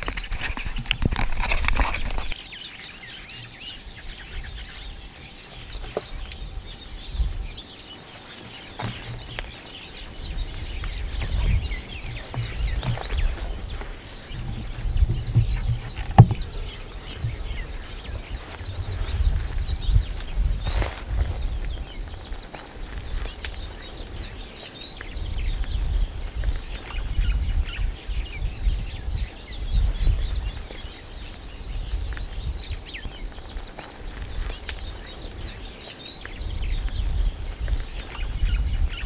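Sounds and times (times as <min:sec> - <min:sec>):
small birds chirping: 0:00.0 - 0:39.0
wind rumble on microphone: 0:00.0 - 0:39.0
knocks on rock: 0:14.6 - 0:17.5.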